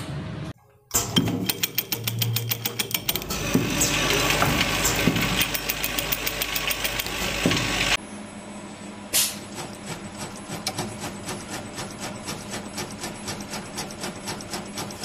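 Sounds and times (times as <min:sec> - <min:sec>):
assembly machine clattering: 0:00.9 - 0:08.0
coil-winding machine ticking: 0:00.9 - 0:08.0
machine knocks: 0:02.9 - 0:08.0.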